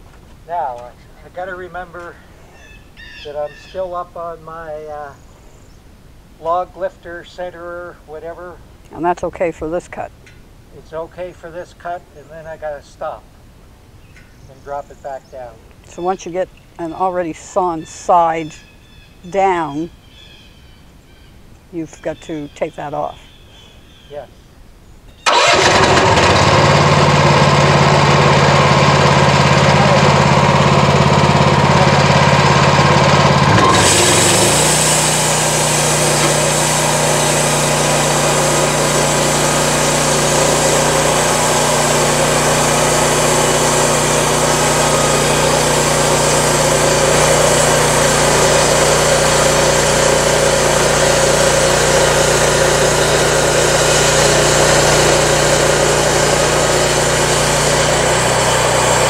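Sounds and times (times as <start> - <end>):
sawmill engine running: 25.3 - 59.0
band saw blade cutting log: 25.6 - 59.0.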